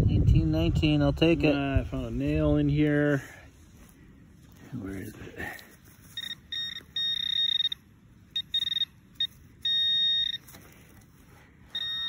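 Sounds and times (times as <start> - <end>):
metal detector pinpointer beeping: 6.0 - 11.0, 11.6 - 12.0.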